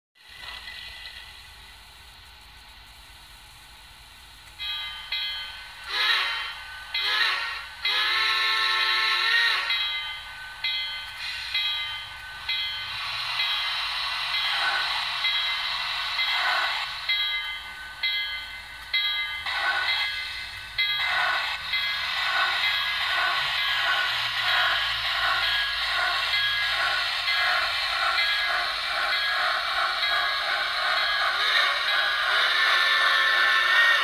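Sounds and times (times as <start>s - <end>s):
steam locomotive exhaust chuffs: 0.2s - 34.0s
model train whistle: 5.8s - 9.8s, 32.3s - 34.0s.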